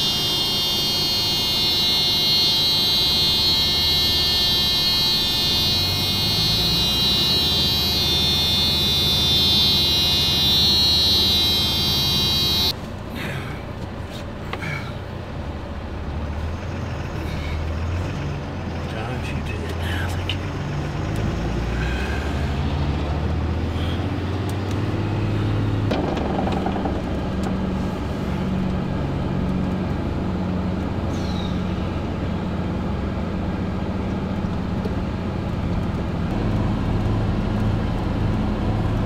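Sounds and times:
high-pitched buzz: 0.0s - 12.7s
vehicle engine running: 0.0s - 39.0s.

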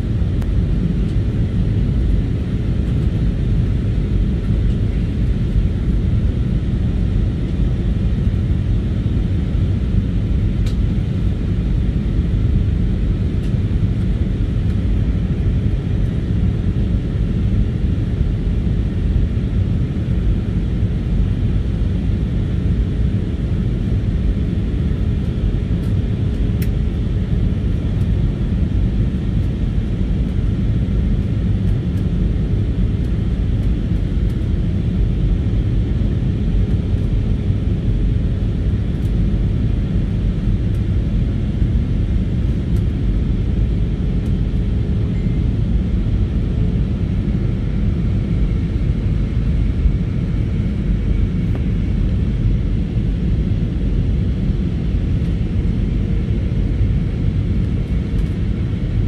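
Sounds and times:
faint steady hum: 0.0s - 59.0s.

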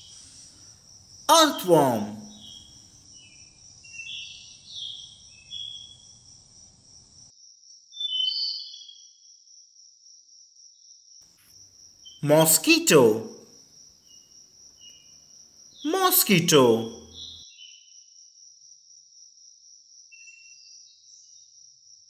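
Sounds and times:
crickets trilling: 0.0s - 7.3s.

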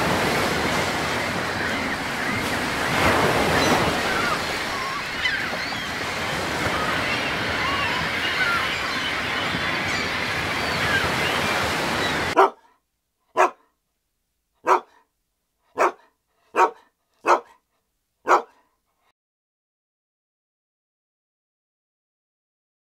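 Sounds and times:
surf: 0.0s - 12.5s
wind: 0.0s - 19.1s
dog barking: 12.4s - 13.7s, 14.6s - 15.1s, 15.7s - 18.7s.

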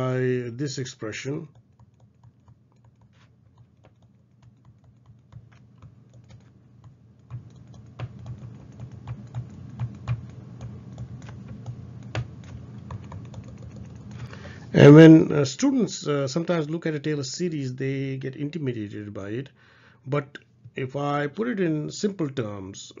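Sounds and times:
stylus tapping on tablet: 1.5s - 14.1s.

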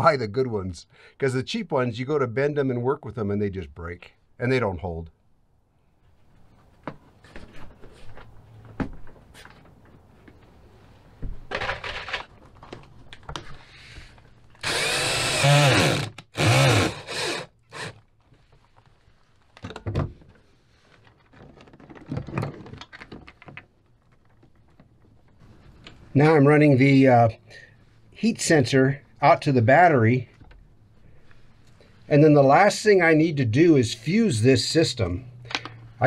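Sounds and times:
cordless drill running: 14.6s - 18.0s
rustling: 18.0s - 19.6s, 20.2s - 26.3s.

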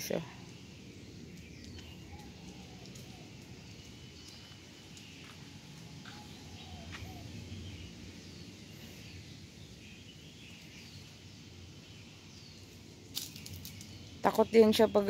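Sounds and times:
steady low hum: 0.0s - 14.7s
faint clicks: 1.3s - 5.2s.

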